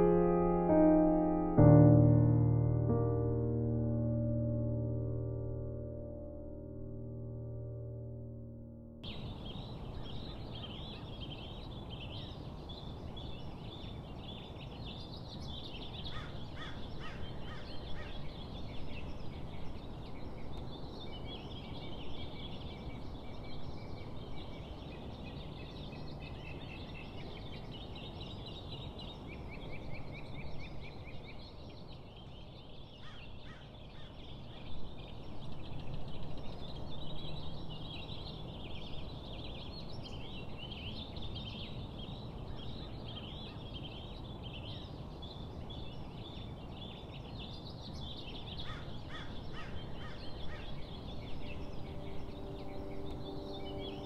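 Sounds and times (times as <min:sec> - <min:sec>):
low background noise: 0:00.0 - 0:54.0
songbirds singing: 0:09.0 - 0:54.0.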